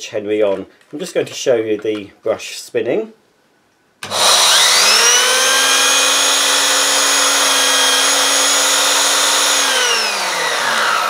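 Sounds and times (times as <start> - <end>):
vacuum cleaner whining: 4.0 - 11.0.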